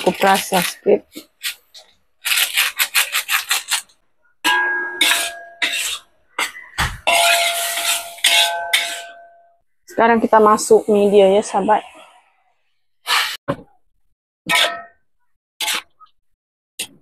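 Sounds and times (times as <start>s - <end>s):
metal spatula scraping a wok: 0.0s - 9.4s, 13.0s - 13.4s, 14.5s - 14.9s, 15.6s - 16.0s
squealing metallic ring: 4.5s - 9.6s.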